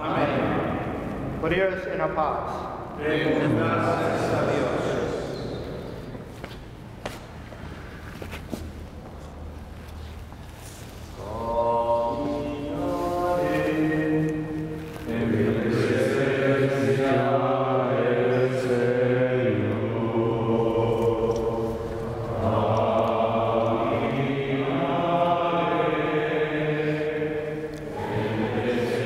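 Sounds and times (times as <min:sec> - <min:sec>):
men singing a hymn: 0:03.0 - 0:05.2, 0:11.2 - 0:29.0.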